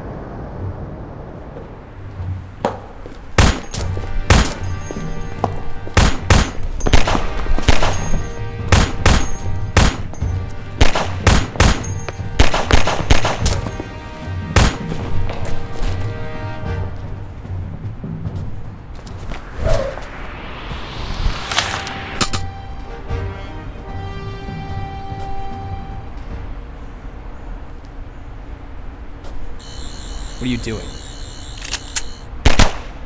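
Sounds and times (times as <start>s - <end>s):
dramatic action music: 3.4s - 17.9s, 20.7s - 26.0s.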